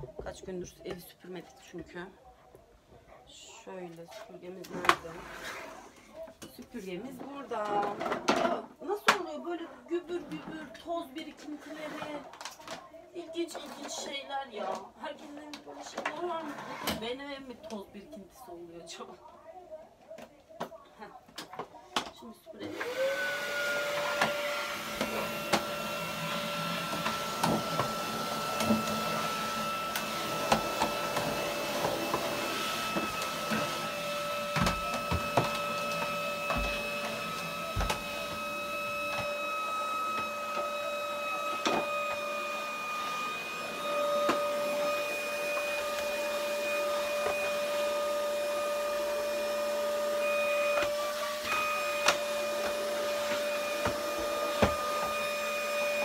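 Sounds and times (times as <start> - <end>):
vacuum cleaner motor whine: 22.6 - 56.0
nozzle knocking and scraping floor: 26.7 - 39.4.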